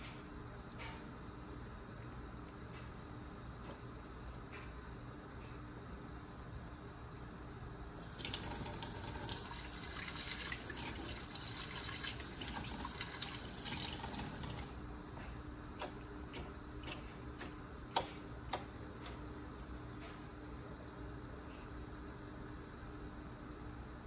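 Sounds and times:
faucet water running into sink: 8.0 - 14.8.

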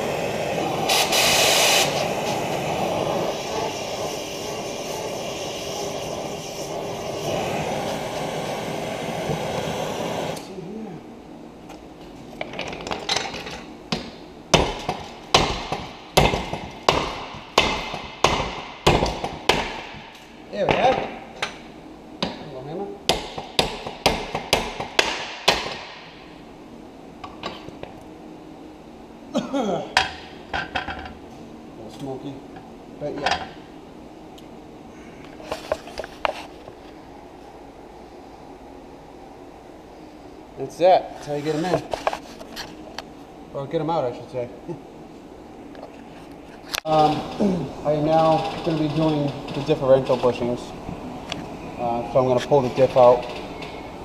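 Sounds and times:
torch flame rushing: 0.0 - 10.4.

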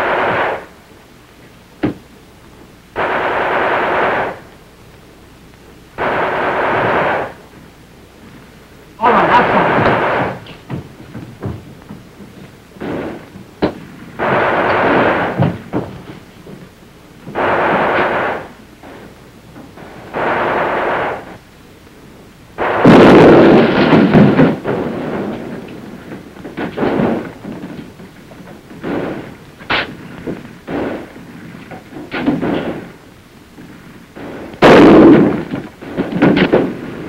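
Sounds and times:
demolition charge blast: 0.0 - 0.8, 2.9 - 4.6, 6.0 - 7.5, 9.0 - 11.7, 12.8 - 16.3, 17.3 - 19.1, 19.7 - 21.4, 22.6 - 33.0, 33.7 - 37.0
explosions: 0.0 - 0.8, 3.0 - 4.5, 6.0 - 7.5, 9.0 - 11.5, 12.8 - 16.2, 17.3 - 19.1, 19.8 - 21.4, 22.6 - 28.0, 28.7 - 33.0, 33.6 - 37.0
gunfire: 0.0 - 0.8, 3.0 - 4.6, 6.0 - 7.5, 9.0 - 10.8, 12.8 - 16.1, 17.3 - 19.1, 19.8 - 21.4, 22.6 - 25.8, 26.5 - 27.8, 28.8 - 31.2, 32.1 - 33.0, 34.2 - 37.0.

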